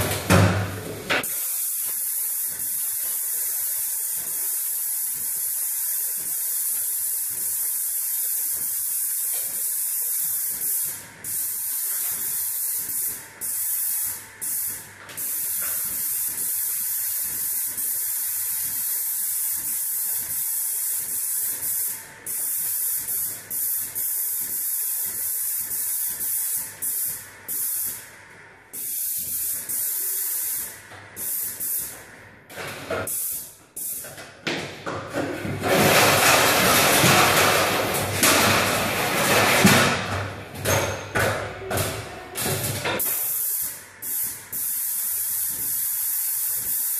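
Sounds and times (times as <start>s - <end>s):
paint spray gun hissing: 1.2s - 28.1s, 28.7s - 32.0s, 33.0s - 34.1s, 43.0s - 46.9s.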